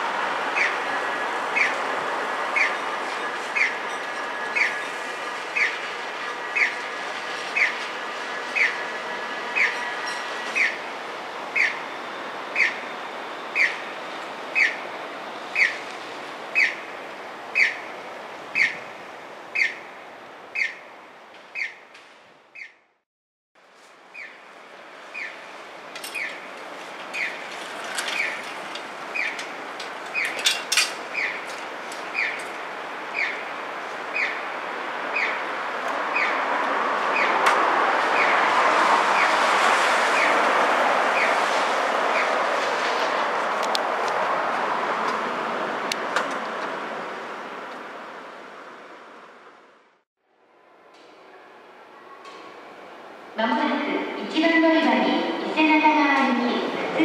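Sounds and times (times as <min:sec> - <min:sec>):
electronic bird chirp signal: 0:11.6 - 0:11.8, 0:12.6 - 0:12.9, 0:13.5 - 0:13.8.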